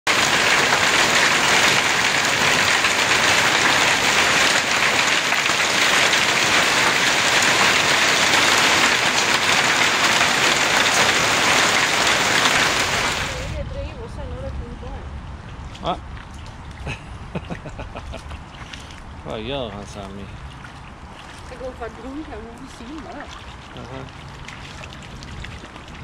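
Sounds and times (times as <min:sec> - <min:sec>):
heavy rain and hail: 0:00.1 - 0:13.6.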